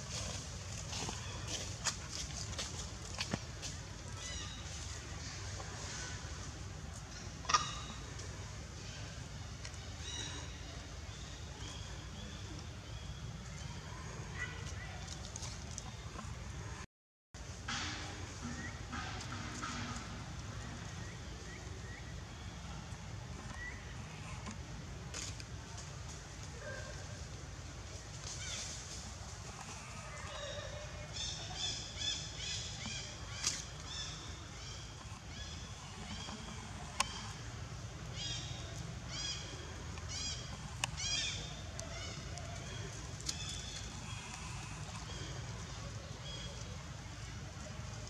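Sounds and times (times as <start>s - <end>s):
steady low rumble: 15.3s - 48.0s.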